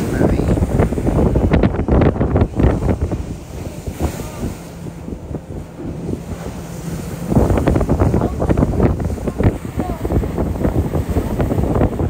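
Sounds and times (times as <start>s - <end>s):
sea washing around a boat: 0.0s - 12.0s
wind buffeting microphone: 0.0s - 12.0s.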